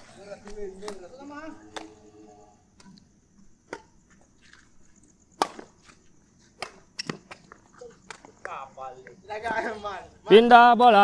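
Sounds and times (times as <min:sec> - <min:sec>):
sharp ball hits: 0:05.4 - 0:05.7.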